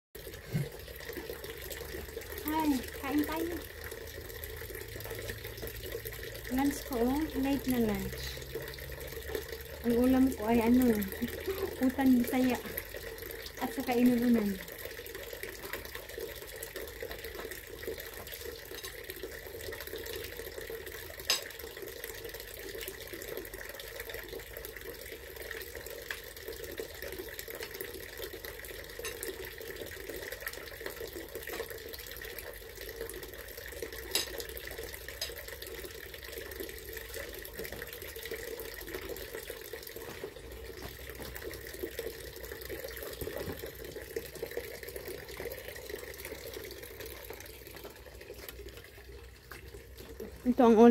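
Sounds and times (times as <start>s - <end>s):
running water trickling: 0.2s - 50.9s.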